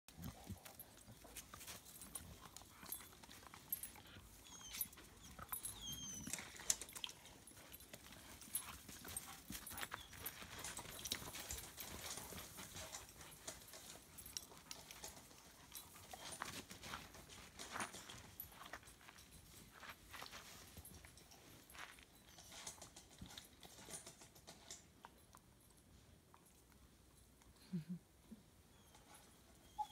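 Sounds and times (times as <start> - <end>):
paw scuffs on dirt: 0.1 - 23.0
dog squeaks: 4.4 - 6.4, 29.7 - 29.9.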